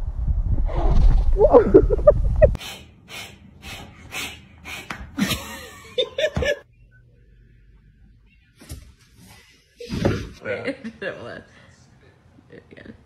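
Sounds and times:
person laughing: 1.4 - 2.6, 5.1 - 6.6.

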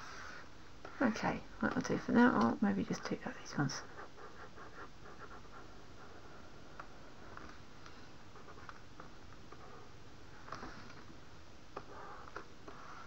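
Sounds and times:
low room hiss: 0.0 - 13.0.

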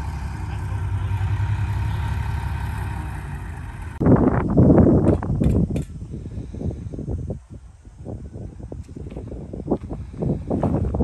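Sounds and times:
bulldozer diesel engine running: 0.0 - 4.0
loud rough noise: 0.0 - 4.1.

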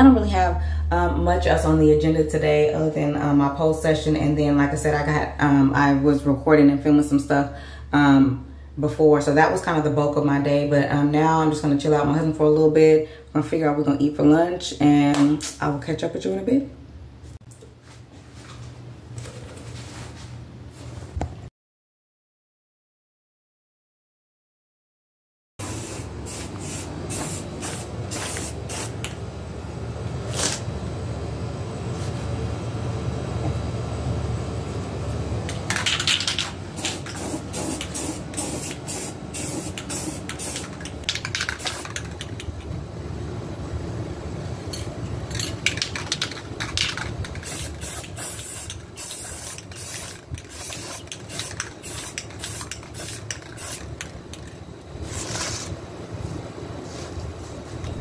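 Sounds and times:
spray paint can hissing: 25.6 - 29.1, 35.7 - 42.5, 45.7 - 54.5.

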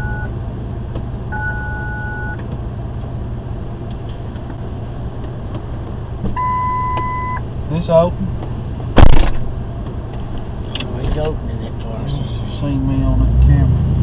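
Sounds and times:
two-pitch electronic beep: 0.0 - 0.3, 1.3 - 2.4, 6.4 - 7.4
vehicle engine idling: 0.0 - 13.6.

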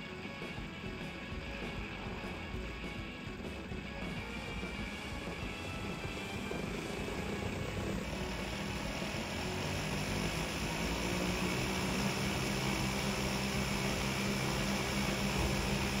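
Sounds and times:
treadmill motor and belt: 0.6 - 16.0
toy electric motors humming: 5.6 - 16.0.

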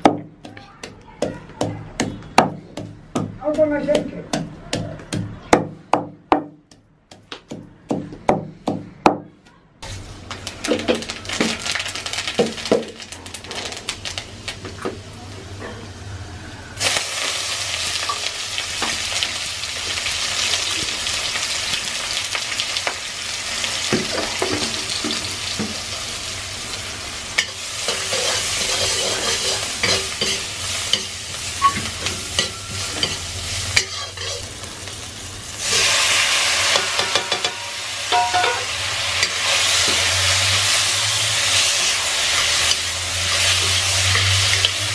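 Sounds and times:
pestle pounding in wooden mortar: 0.0 - 9.2
onions sizzling in oil: 9.8 - 15.2, 16.8 - 44.9
metal ladle scraping a wok: 27.4 - 34.5.

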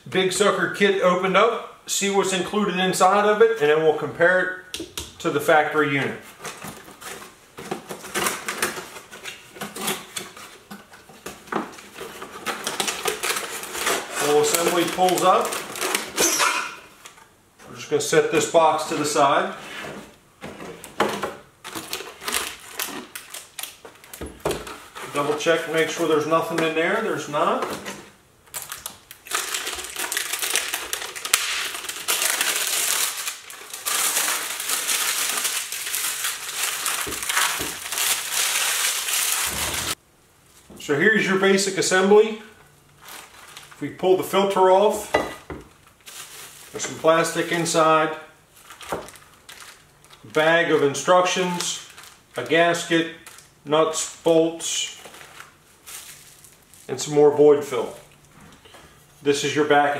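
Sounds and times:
packaging crinkling: 6.4 - 17.2, 21.6 - 40.0, 42.9 - 44.5, 45.7 - 53.5, 54.8 - 57.0
cardboard rustling and scraping: 18.8 - 28.2.

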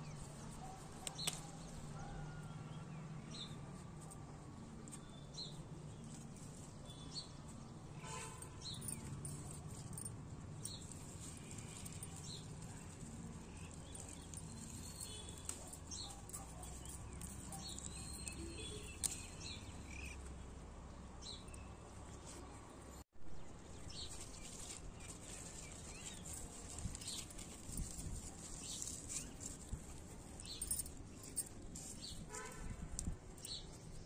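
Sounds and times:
leaves rustling and clicking: 0.0 - 2.0, 3.6 - 7.7, 8.6 - 20.4, 23.6 - 34.0
small birds chirping: 8.6 - 20.5.

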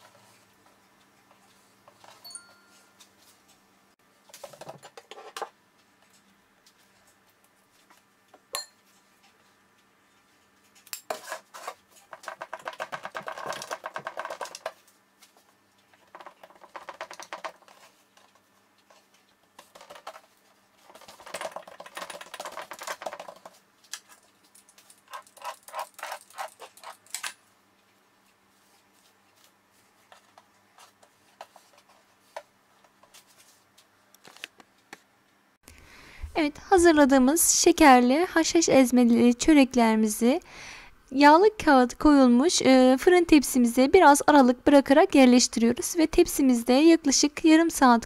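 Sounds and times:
metal spoon scraping over dough: 11.1 - 12.3.

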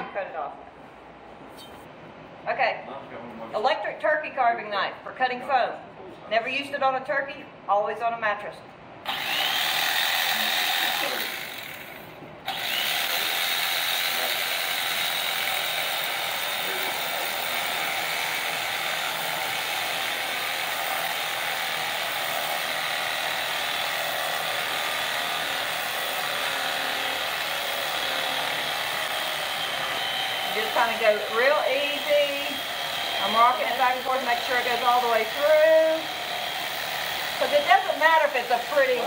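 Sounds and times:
electric knife buzzing through foam: 9.1 - 39.0.

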